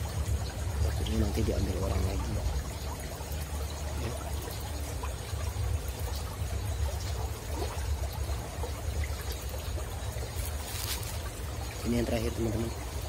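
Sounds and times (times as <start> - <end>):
soft hiss: 0.0 - 13.0
faint small ticks: 9.0 - 11.4.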